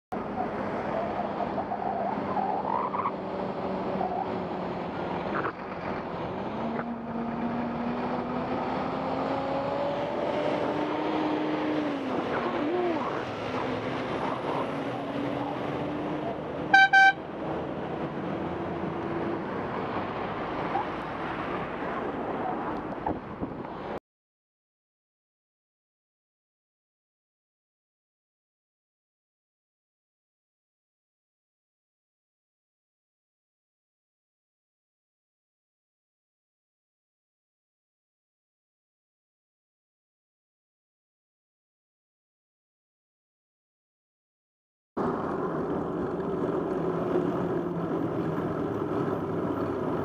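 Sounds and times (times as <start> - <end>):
wind and road noise: 0.1 - 24.0, 45.0 - 50.0
passing motor vehicles: 0.2 - 24.0, 45.0 - 50.0
high-pitched horn toots: 16.7 - 17.2.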